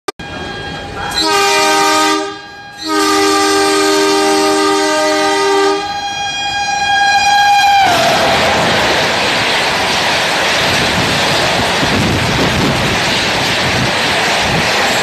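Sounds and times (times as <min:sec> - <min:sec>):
train horn blasts: 0:00.2 - 0:08.3.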